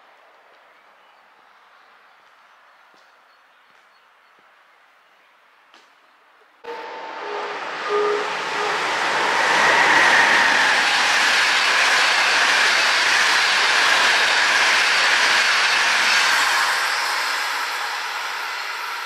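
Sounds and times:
train wheels rushing on rail: 6.7s - 19.0s.

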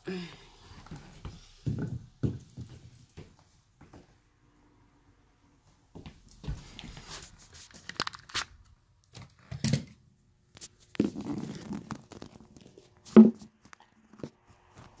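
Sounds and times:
phone handling rustling and scraping: 7.2s - 8.5s.

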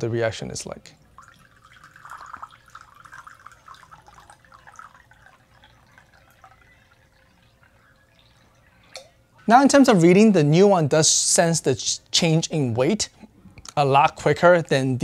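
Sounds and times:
water trickling into mugs: 0.7s - 9.4s.

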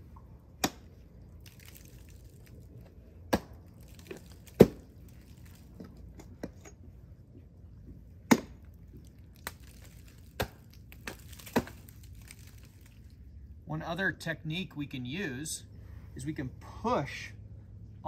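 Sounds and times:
ice tools chopping into ice: 9.4s - 12.5s.

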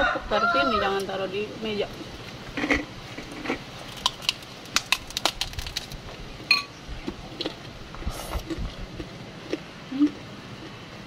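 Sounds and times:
crackers crunching when chewed: 2.6s - 6.0s, 7.0s - 10.8s.

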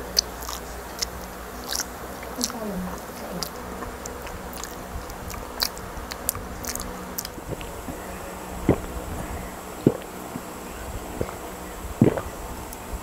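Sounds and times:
person chewing: 0.1s - 8.0s, 9.8s - 10.5s, 12.0s - 12.9s
wet clicks and smacks licking fingers: 0.2s - 2.6s, 3.4s - 7.7s.

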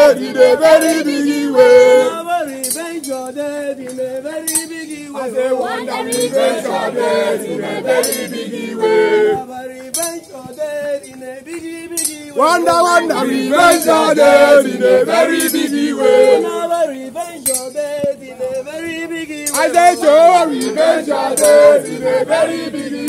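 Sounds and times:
men singing a chant: 0.0s - 23.0s
sharp clinks: 2.5s - 5.1s, 6.0s - 6.8s, 9.9s - 10.4s, 11.9s - 12.3s, 17.4s - 17.9s, 19.4s - 21.9s.

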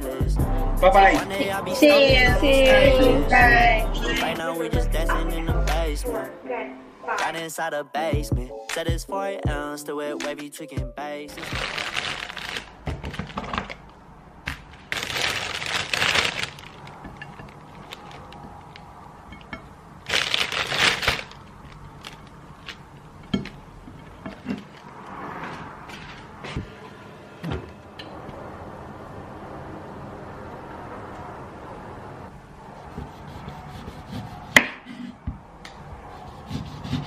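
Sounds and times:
plastic packaging crinkling: 11.3s - 19.0s, 20.0s - 23.2s.

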